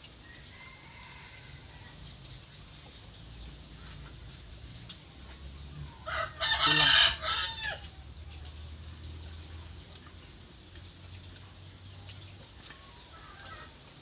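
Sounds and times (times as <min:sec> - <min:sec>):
rooster crowing: 0:00.2 - 0:02.0, 0:06.0 - 0:07.9.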